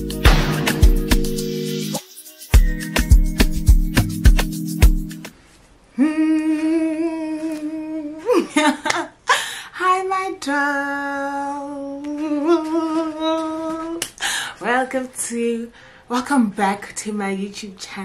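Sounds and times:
intro music with a beat: 0.0 - 5.3
woman singing long notes: 5.9 - 8.4, 9.7 - 14.0.

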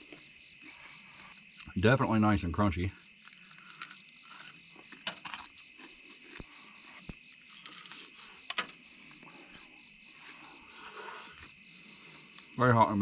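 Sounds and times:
night insects chirring: 0.0 - 13.0
crunchy chewing: 3.0 - 12.6.

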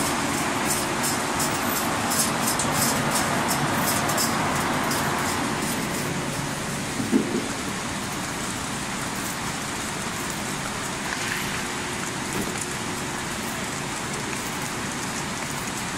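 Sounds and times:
machine hissing: 0.0 - 7.4
machine knock: 7.0 - 7.6.

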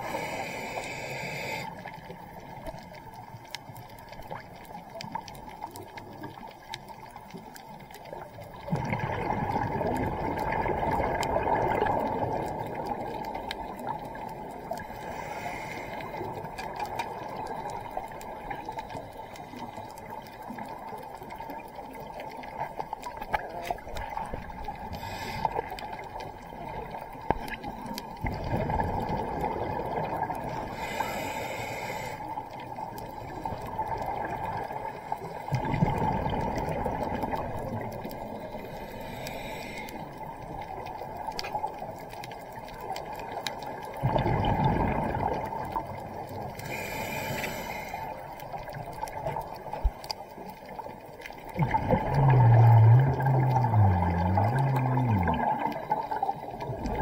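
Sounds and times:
hissing regulator inhales: 0.0 - 1.9, 14.8 - 16.3, 24.9 - 25.7, 30.6 - 32.3, 38.6 - 40.1, 46.6 - 48.2
faint steady reef crackle: 0.0 - 57.0
exhaled bubbles rushing: 8.5 - 14.6, 28.2 - 30.5, 35.5 - 38.1, 43.0 - 46.5, 50.6 - 57.0.

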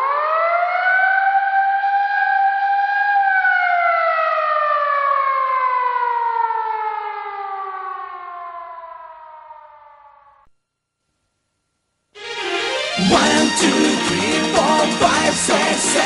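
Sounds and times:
motor siren winding down: 0.0 - 10.5.

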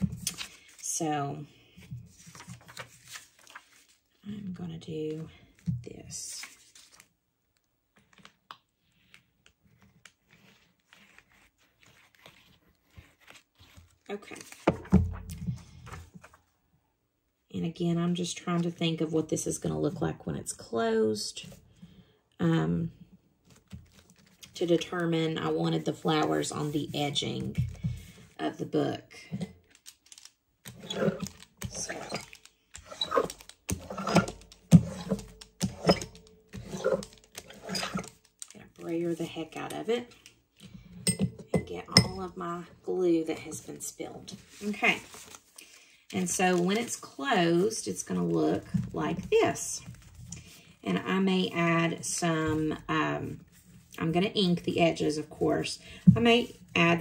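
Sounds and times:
paper rustling: 1.7 - 4.2, 6.4 - 7.1, 9.0 - 16.4, 29.6 - 40.4, 44.3 - 50.6
rubber brayer rolling over paper: 30.6 - 39.6.

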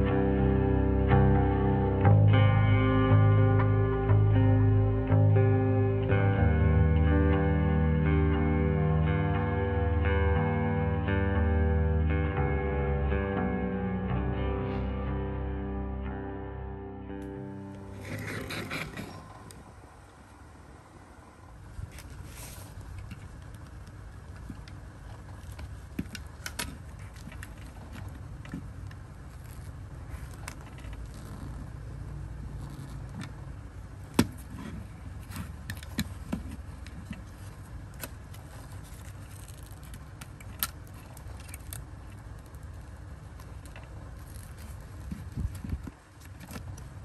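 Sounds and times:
low steady rumble: 0.0 - 47.0.

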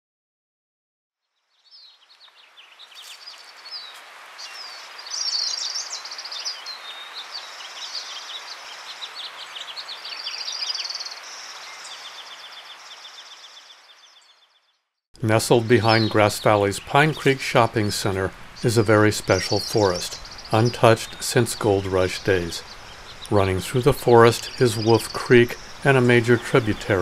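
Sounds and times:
songbirds chirping and trilling: 1.3 - 27.0
water running over rocks: 2.3 - 13.3, 15.2 - 27.0.

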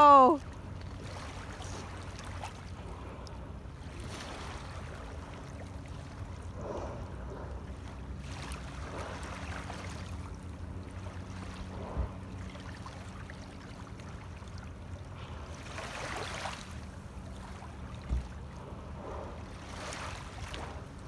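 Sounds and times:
low hum: 0.0 - 21.0
waves lapping on pebbles: 0.6 - 6.8, 8.2 - 14.5, 15.3 - 17.9, 19.0 - 21.0.

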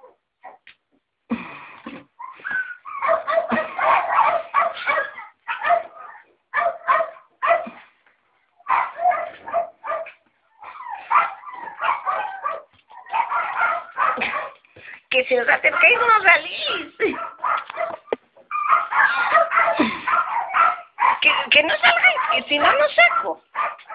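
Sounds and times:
puppies yipping and whimpering: 2.2 - 4.2, 10.5 - 14.2, 17.2 - 20.8.

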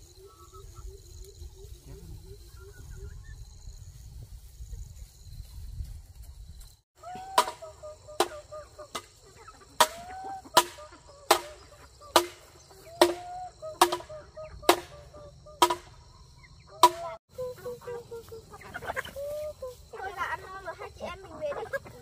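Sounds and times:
chickens clucking: 0.0 - 5.0, 7.0 - 22.0
sharp knocks: 9.8 - 11.6, 12.2 - 14.1, 14.7 - 15.0, 15.6 - 16.0, 16.8 - 17.2.

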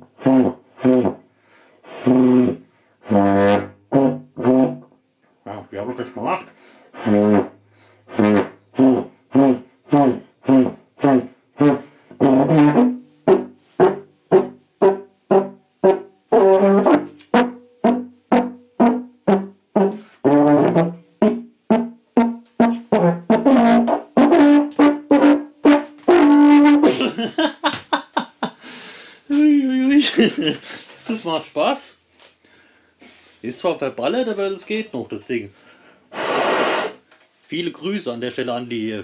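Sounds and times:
brass tenor horn notes: 0.0 - 1.2, 1.8 - 4.9, 6.9 - 27.2.

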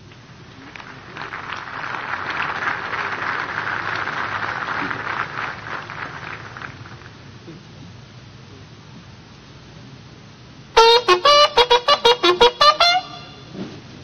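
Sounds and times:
audience applauding: 0.5 - 7.3.

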